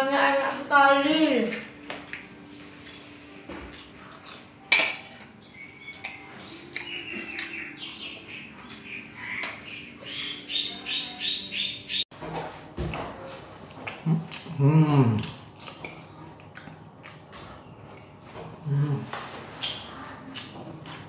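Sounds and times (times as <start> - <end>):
birds chirping and calling: 5.0 - 12.1.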